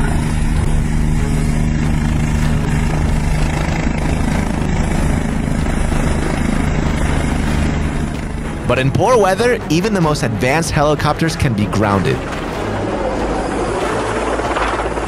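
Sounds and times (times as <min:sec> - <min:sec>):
constant low hum: 0:00.0 - 0:15.0
helicopter rotor and turbine: 0:00.0 - 0:15.0.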